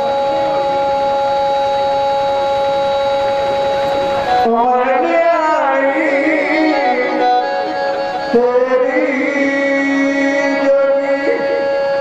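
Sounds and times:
harmonium drone: 0.0s - 12.0s
person singing devotional song: 4.5s - 11.8s.

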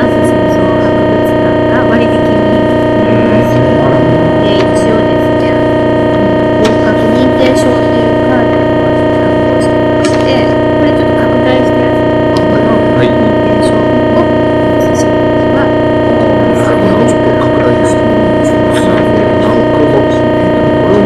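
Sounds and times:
loud electrical buzz: 0.0s - 21.0s
faint man speaking: 2.8s - 4.7s, 16.2s - 21.0s.

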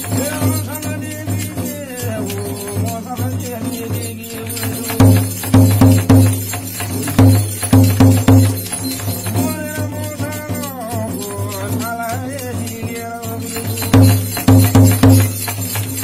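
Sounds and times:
rattling and jingling: 0.0s - 16.0s
loud irregular drum strikes: 4.6s - 11.9s, 13.6s - 16.0s.

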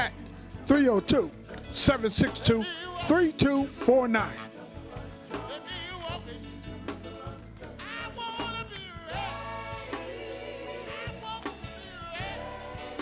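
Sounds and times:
person singing with wavering voice: 2.3s - 3.4s, 4.0s - 13.0s.

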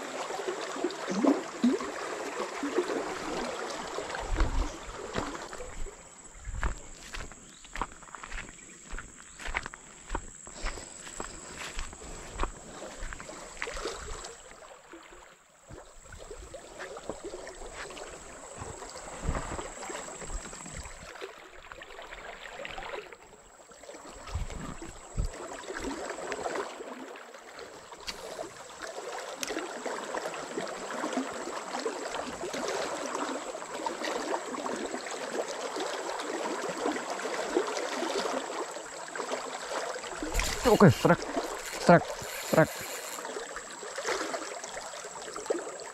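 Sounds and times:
river water rushing: 0.0s - 7.3s, 28.2s - 45.9s.

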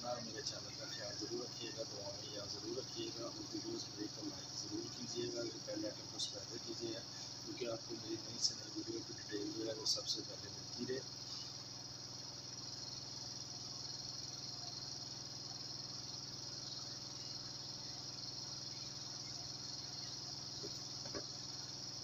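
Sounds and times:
high-pitched whine: 0.0s - 11.7s.

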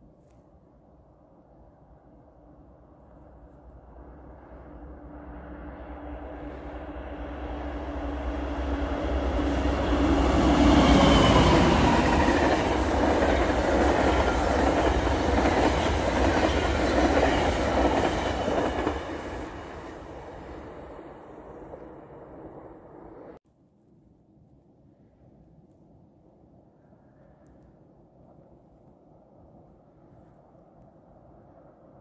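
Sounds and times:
diesel locomotive engine: 3.6s - 23.4s
train wheels rushing on rails: 5.2s - 23.3s.

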